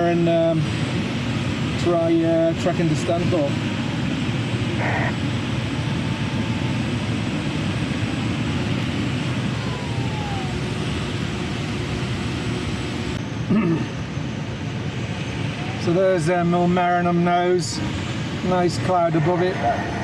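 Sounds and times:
faint falling tone: 9.5s - 11.6s.

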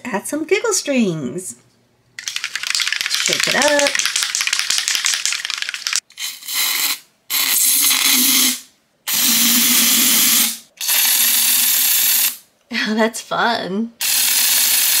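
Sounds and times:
aerosol can ball rattling: 2.2s - 6.3s
aerosol spray hissing: 4.0s - 12.4s, 14.0s - 15.0s.

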